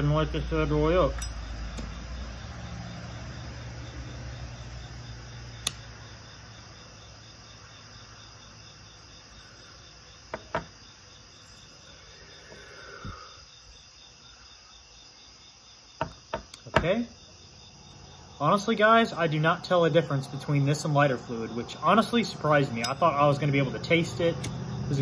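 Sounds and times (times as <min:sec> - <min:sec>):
crickets chirping: 0:00.0 - 0:25.0
soft knocks: 0:10.3 - 0:10.7.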